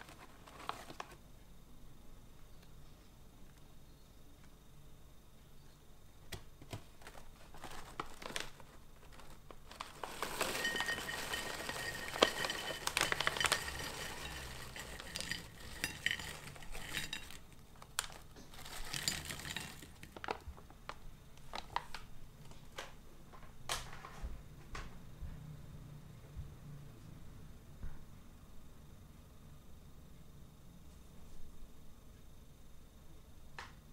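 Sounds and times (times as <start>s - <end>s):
foil bag crinkling: 0.0s - 1.2s, 6.7s - 22.1s.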